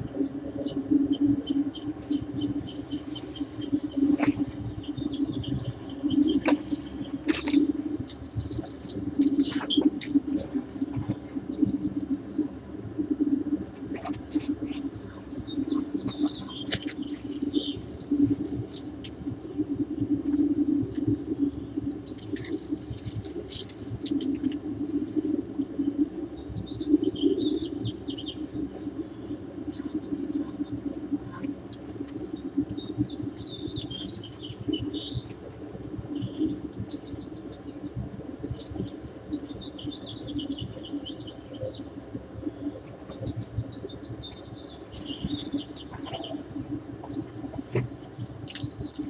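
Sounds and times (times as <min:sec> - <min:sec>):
steady low hum: 0:00.0 - 0:49.0
birds chirping and singing: 0:00.6 - 0:07.8, 0:36.0 - 0:47.2.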